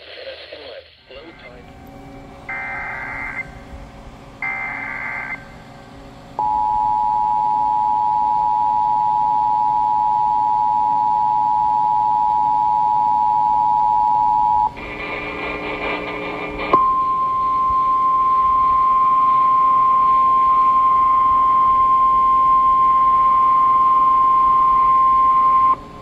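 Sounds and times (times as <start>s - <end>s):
data header bursts: 2.5s - 3.7s, 4.4s - 5.8s, 14.8s - 17.4s.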